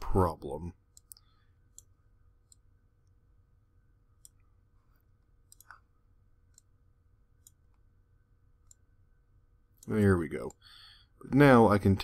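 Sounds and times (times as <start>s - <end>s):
low room hum: 0.0s - 12.0s
computer mouse clicks: 0.9s - 2.7s, 4.2s - 5.8s, 6.5s - 6.7s.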